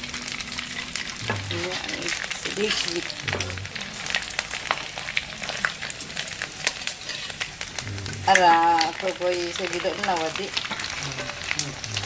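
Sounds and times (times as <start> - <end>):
crackers sizzling in hot oil: 0.0 - 12.0.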